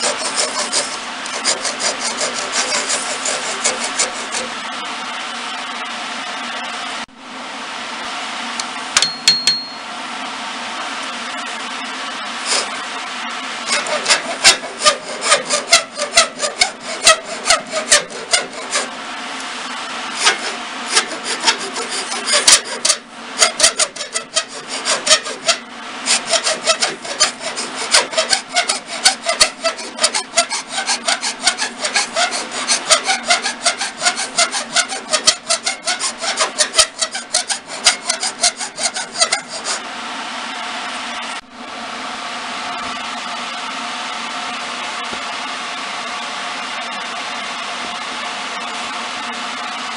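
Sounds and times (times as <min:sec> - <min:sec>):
wood file rasping: 0:00.0 - 0:04.6, 0:12.4 - 0:12.9, 0:13.6 - 0:18.9, 0:20.1 - 0:39.8
steady machine hum: 0:00.0 - 0:49.9.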